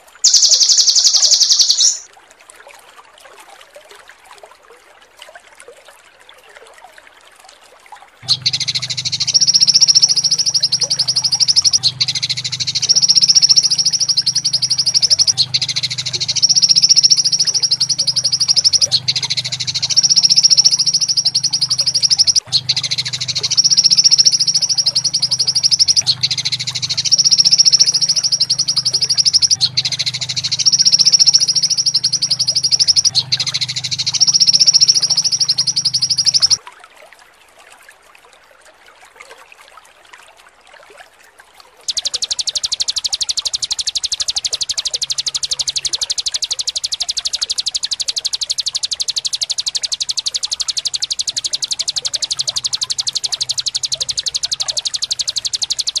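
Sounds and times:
songbird rattling trill: 0.0 - 2.1, 8.2 - 36.6, 41.9 - 56.0
low steady hum: 8.2 - 36.6, 41.9 - 56.0.

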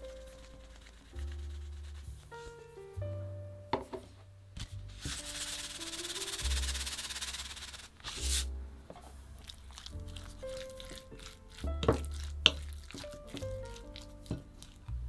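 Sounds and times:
soft background music: 0.0 - 15.0
salt sprinkling grainy hiss: 5.0 - 8.5.

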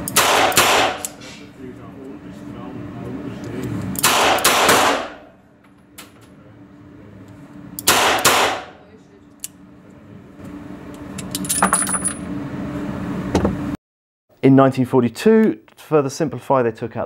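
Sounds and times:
revolver shots echoing indoors: 0.0 - 1.2, 3.9 - 5.4, 7.8 - 8.8.

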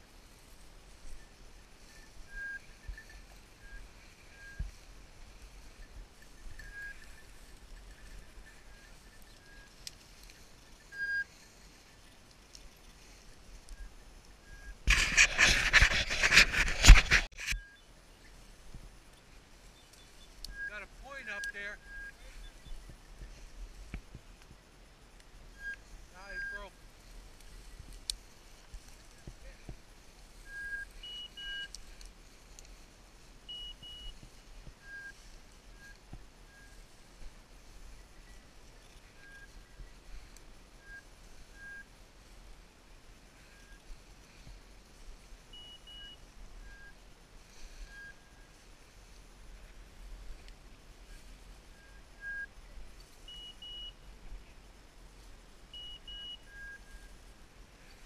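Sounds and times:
footsteps in dry grass: 0.0 - 52.1
short electronic beeps: 1.9 - 4.7, 5.7 - 9.8, 10.7 - 11.4, 13.8 - 15.3, 25.5 - 26.7, 30.5 - 31.8, 33.5 - 34.2, 45.5 - 47.0, 53.3 - 54.0, 55.7 - 57.1
electronic beeper beeping: 25.6 - 26.7.

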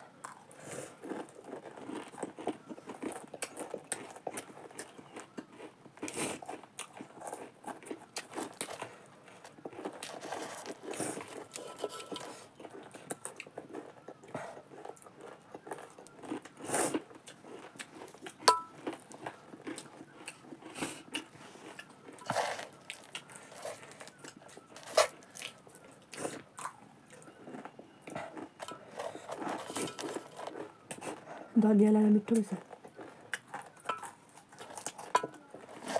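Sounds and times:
chewing crunchy snack: 0.0 - 35.9
spoon clinking on steel bowl: 11.6 - 12.4, 18.5 - 18.8.

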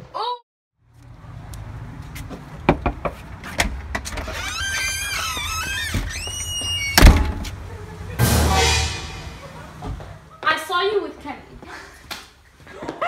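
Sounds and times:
door hinge squeaking: 4.2 - 7.4.

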